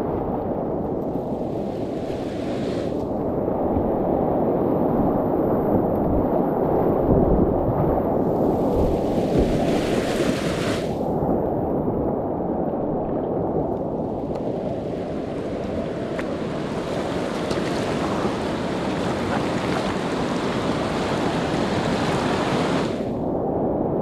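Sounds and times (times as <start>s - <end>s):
paddle strokes splashing: 1.2s - 3.0s, 8.5s - 11.0s, 14.4s - 23.1s
rushing whitewater: 8.5s - 11.0s, 14.5s - 23.1s.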